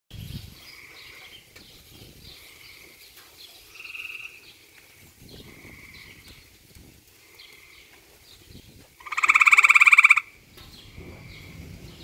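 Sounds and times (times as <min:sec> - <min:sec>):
tree frog croaking: 0:03.7 - 0:04.4, 0:05.4 - 0:06.5, 0:09.0 - 0:10.4.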